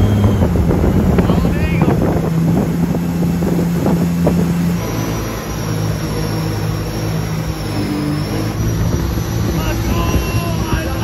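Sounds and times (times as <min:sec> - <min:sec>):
boat engine running: 0:00.0 - 0:11.0
wind on microphone: 0:00.0 - 0:11.0
thin high whine: 0:04.1 - 0:11.0.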